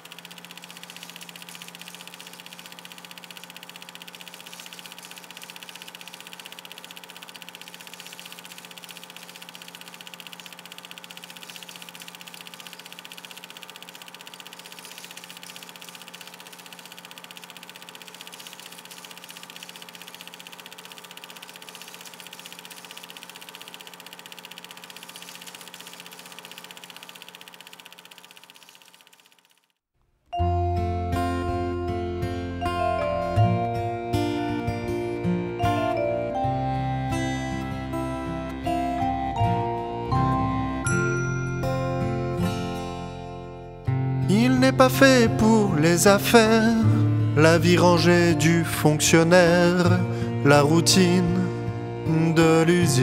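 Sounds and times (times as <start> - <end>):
film projector clattering: 0.0 - 29.8, 44.3 - 53.0
projector motor hum: 0.0 - 29.8.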